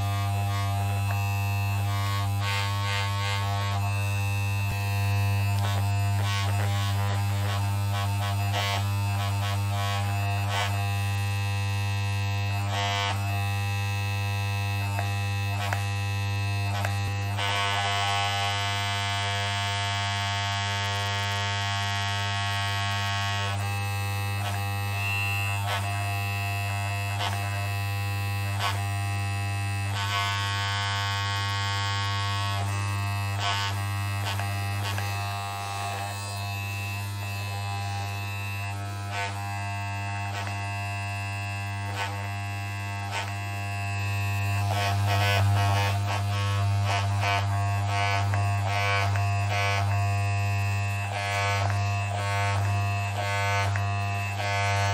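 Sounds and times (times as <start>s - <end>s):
electric hair clippers buzzing: 0.0s - 54.9s.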